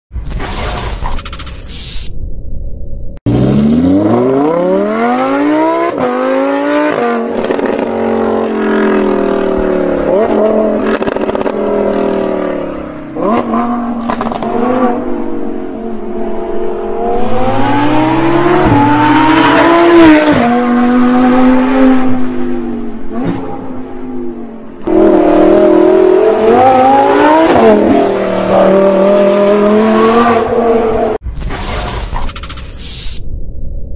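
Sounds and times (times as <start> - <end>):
sports car engine accelerating hard: 3.3 - 31.2.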